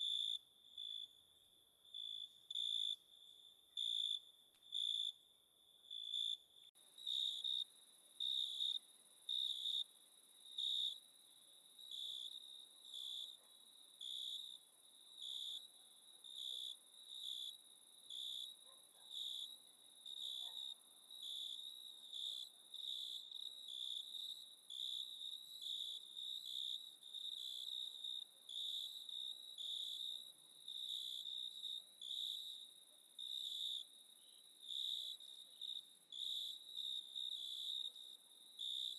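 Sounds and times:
insect chirping: 0:00.0 - 0:15.7, 0:16.3 - 0:38.9.

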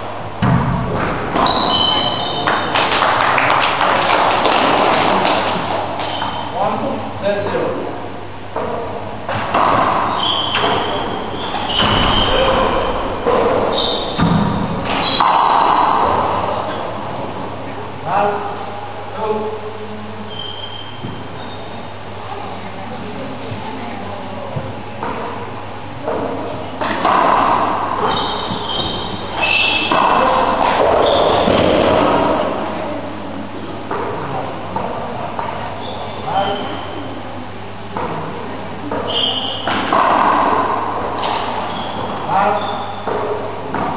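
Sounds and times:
reverberant voices: 0:00.0 - 0:43.9
sneakers squeaking on wooden floor: 0:01.1 - 0:02.5, 0:06.0 - 0:06.6, 0:09.4 - 0:17.0, 0:20.3 - 0:21.9, 0:27.0 - 0:31.8, 0:35.8 - 0:37.0, 0:39.0 - 0:40.4, 0:41.2 - 0:43.9
shoes squeaking on wooden floor: 0:10.0 - 0:12.6, 0:13.2 - 0:15.5, 0:28.1 - 0:30.0, 0:41.6 - 0:43.1.

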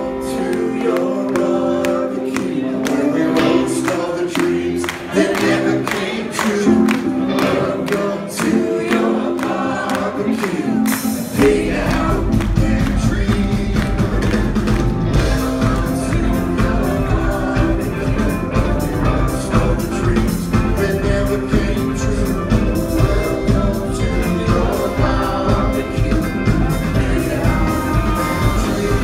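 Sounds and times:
live rock band: 0:00.0 - 0:29.0
person singing: 0:00.0 - 0:29.0
heavy deep bass: 0:11.4 - 0:29.0.

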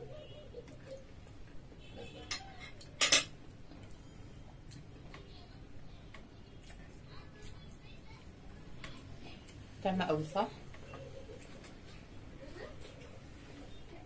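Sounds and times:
forks clinking on plates: 0:02.2 - 0:03.4.

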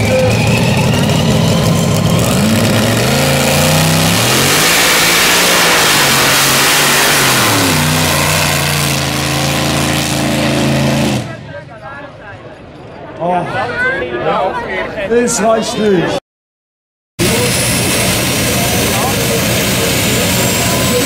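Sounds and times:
tractor engine at full throttle: 0:00.0 - 0:11.5, 0:17.2 - 0:21.0.

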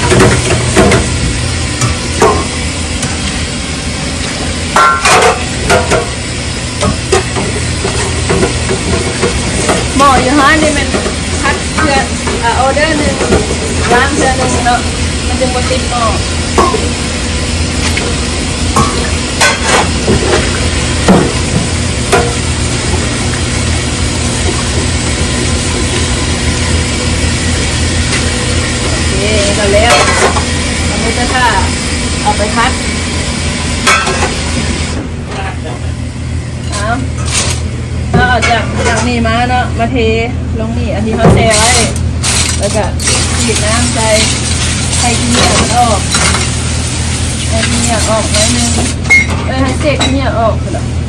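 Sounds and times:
tap water running into sink: 0:00.0 - 0:35.0
scouring pad scrubbing wok: 0:00.0 - 0:35.5, 0:41.0 - 0:50.8
pan knocking against sink: 0:01.8 - 0:02.6, 0:04.7 - 0:06.1, 0:16.6 - 0:16.9, 0:17.9 - 0:22.4.

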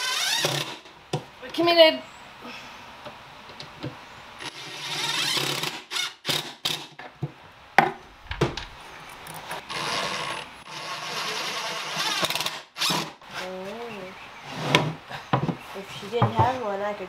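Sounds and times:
cordless drill driving screws: 0:00.0 - 0:00.9, 0:04.4 - 0:07.0, 0:09.5 - 0:13.4
wood knocking: 0:07.2 - 0:08.8, 0:16.2 - 0:16.6.

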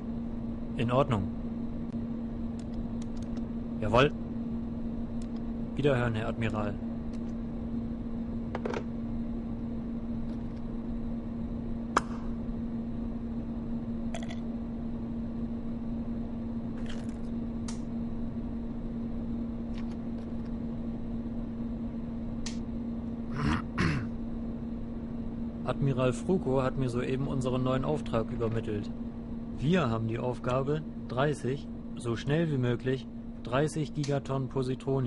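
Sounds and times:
low hum: 0:00.0 - 0:35.0.

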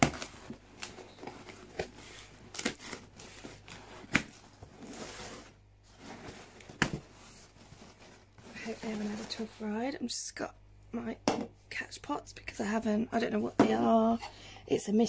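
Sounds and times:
packing tape tearing: 0:00.0 - 0:05.1
cardboard rustling and scraping: 0:00.0 - 0:09.7.

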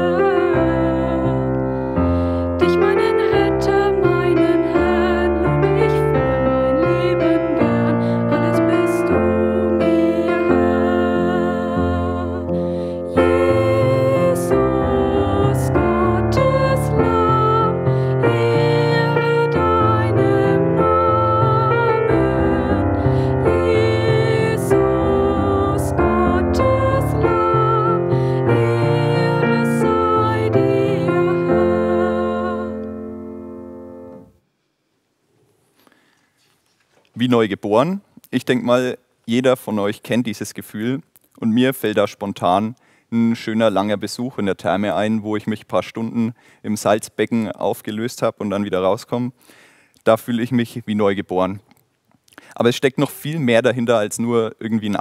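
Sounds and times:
woman singing: 0:00.0 - 0:33.2
piano accompaniment: 0:00.0 - 0:34.4
slow worship song with keyboard: 0:00.0 - 0:34.4.

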